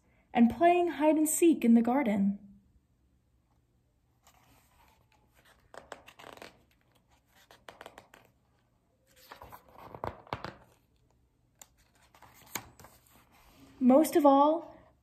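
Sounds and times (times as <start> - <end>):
book pages rustling and turning: 4.2 - 13.8.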